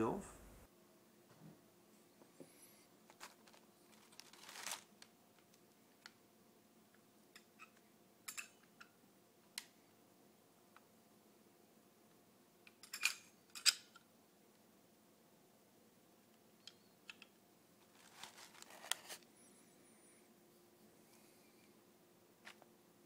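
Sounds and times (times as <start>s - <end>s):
brief rustle: 3.1s - 4.9s, 17.9s - 19.2s.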